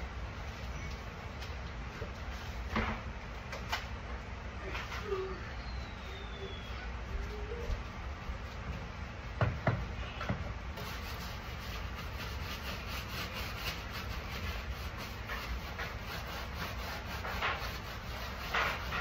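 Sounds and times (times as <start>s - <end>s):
scrubbing kitchen surface: 10.8s - 19.0s.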